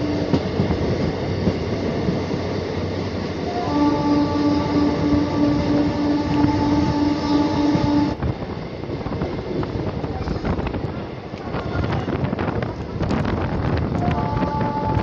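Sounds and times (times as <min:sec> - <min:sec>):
moving train running noise: 0:00.0 - 0:15.0
wind rush: 0:00.0 - 0:15.0
train horn: 0:03.4 - 0:08.2, 0:13.9 - 0:15.0.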